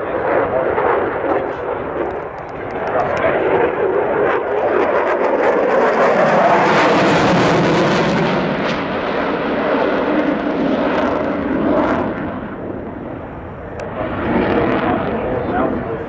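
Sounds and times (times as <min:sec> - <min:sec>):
jet fighter flying past: 0:00.0 - 0:16.0.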